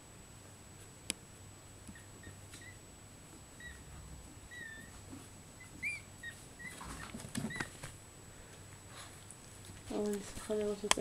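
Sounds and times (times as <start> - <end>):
puppy squeaking and whimpering: 1.9 - 2.9, 3.5 - 7.9.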